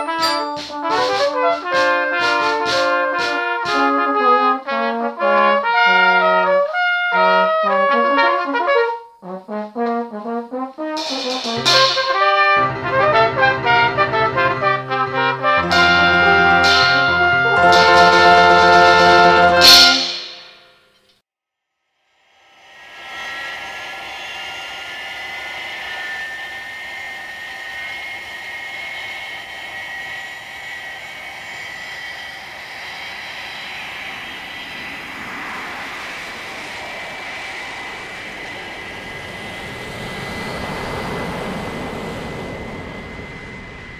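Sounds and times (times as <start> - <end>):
jet engines whining: 0.0 - 8.6, 9.8 - 20.5, 22.4 - 43.9
rushing noise: 11.0 - 14.5, 22.3 - 43.9.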